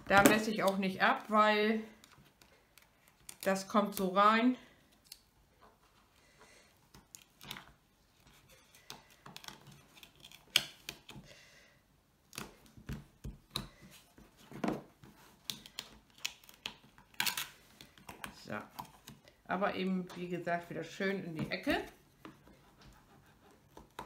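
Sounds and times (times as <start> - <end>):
tape and cardboard clicks and rustles: 6.9 - 11.3, 12.3 - 19.2.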